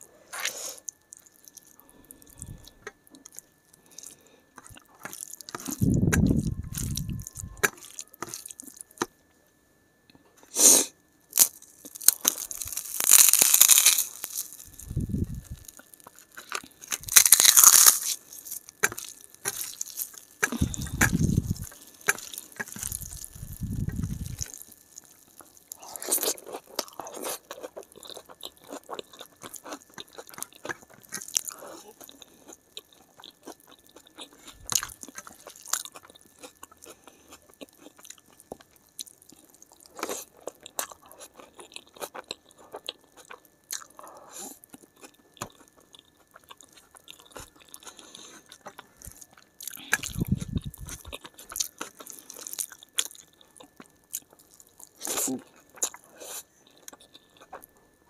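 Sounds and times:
chewing and crunching food: 0.0s - 9.2s, 11.3s - 58.0s.

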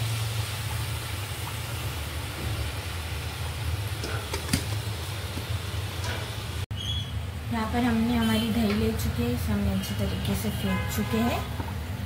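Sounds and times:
potatoes sizzling in hot oil: 0.0s - 6.6s.

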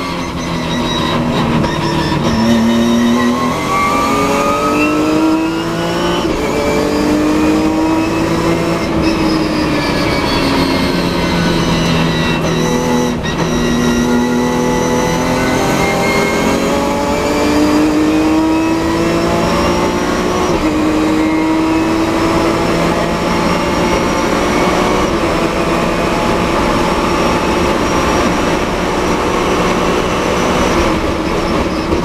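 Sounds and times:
race car engine accelerating: 0.0s - 32.0s.

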